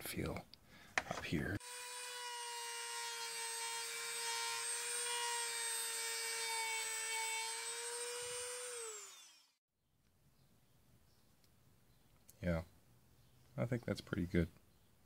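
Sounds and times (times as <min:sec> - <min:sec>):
rotary tool high whine: 0:01.6 - 0:09.6.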